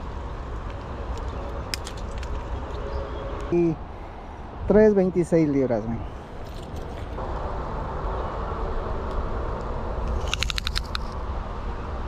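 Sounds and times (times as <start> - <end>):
low outdoor rumble: 0.0 - 12.0
sharp clicks: 10.1 - 11.2.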